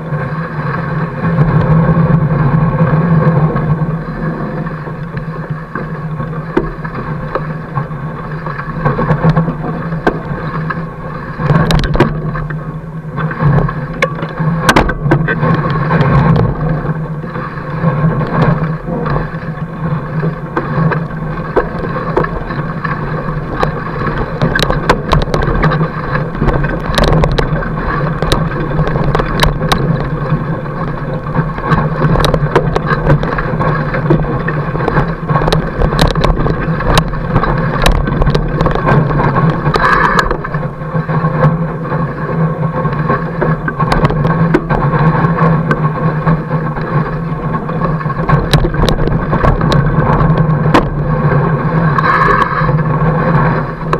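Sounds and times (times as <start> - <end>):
bike tyre rolling over snow: 0.0 - 53.9
bike clicks and knocks: 14.0 - 15.4.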